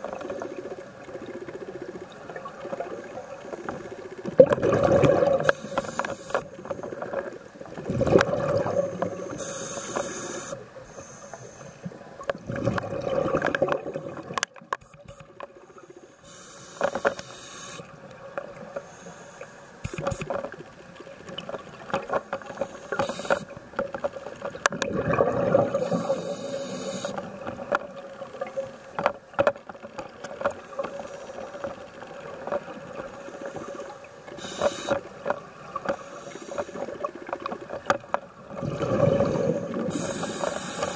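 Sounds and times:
bubbling exhalations: 4.4s - 5.5s, 7.8s - 9.4s, 12.4s - 14.4s, 24.7s - 26.2s, 38.5s - 40.2s
hissing regulator inhalations: 5.4s - 6.9s, 8.8s - 12.0s, 15.0s - 17.9s, 18.6s - 20.3s, 22.2s - 23.6s, 25.7s - 27.3s, 33.1s - 35.1s, 35.8s - 37.0s, 39.0s - 40.9s.

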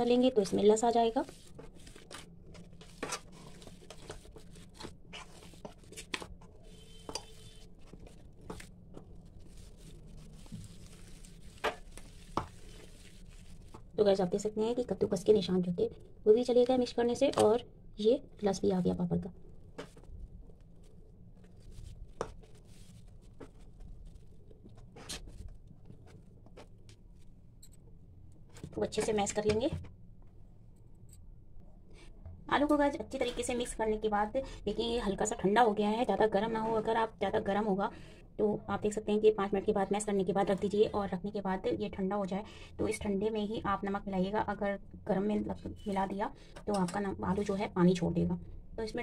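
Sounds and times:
hand kneading mashed potato: 0.1s - 15.4s, 18.6s - 27.3s.

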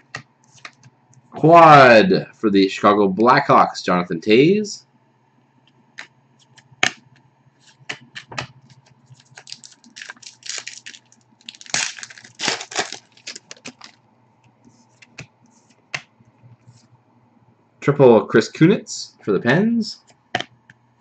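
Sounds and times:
trading cards shuffling: 0.0s - 0.9s, 7.6s - 14.0s, 14.6s - 16.9s
foil wrapper crinkling: 8.7s - 14.0s.

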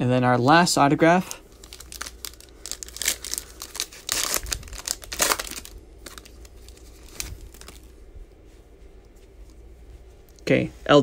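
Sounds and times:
cards rustling: 1.2s - 8.0s
wrapper tearing and crinkling: 1.4s - 8.0s.

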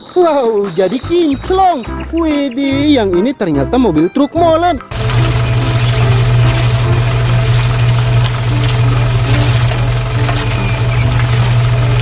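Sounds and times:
toy cement mixer humming: 4.9s - 12.0s.

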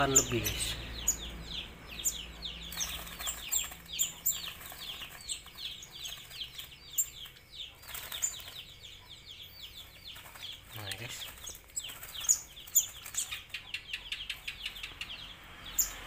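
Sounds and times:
birds chirping in distress: 0.0s - 16.0s
fluttering wings: 2.6s - 8.6s, 9.9s - 13.5s.

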